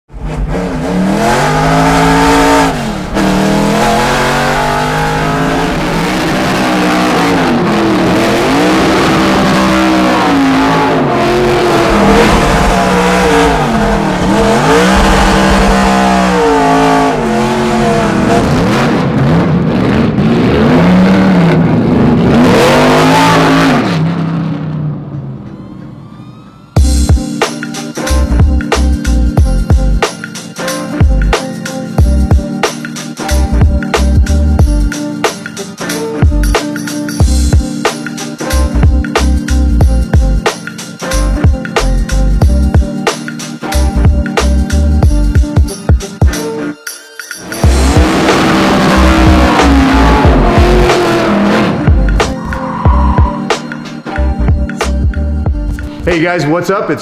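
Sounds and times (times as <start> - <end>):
loud race car engine revving: 0.1 - 24.6, 47.4 - 53.5.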